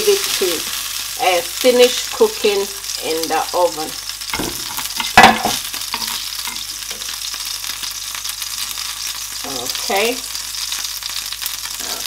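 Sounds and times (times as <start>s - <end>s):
oil sizzling in frying pan: 0.0s - 12.0s
spatula stirring: 4.4s - 7.1s.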